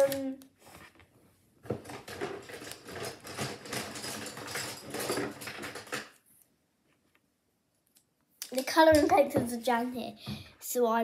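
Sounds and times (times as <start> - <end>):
pencils rustling and clattering: 0.0 - 7.1, 8.4 - 9.6.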